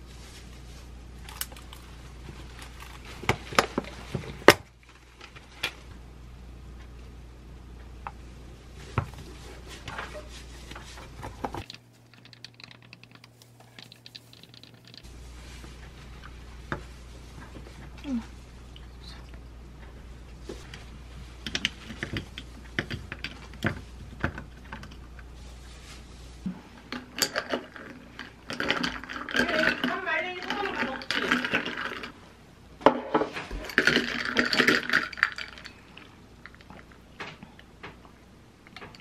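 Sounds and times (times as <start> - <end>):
faint clicks of mixing: 7.7 - 32.2
containers and glassware clicking: 11.4 - 15.1, 26.9 - 32.1, 33.2 - 37.4.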